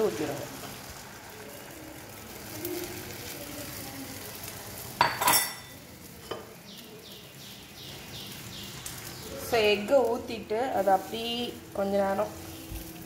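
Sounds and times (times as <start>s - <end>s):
egg sizzling in frying pan: 0.0s - 13.0s
kitchenware clinking: 5.0s - 6.6s.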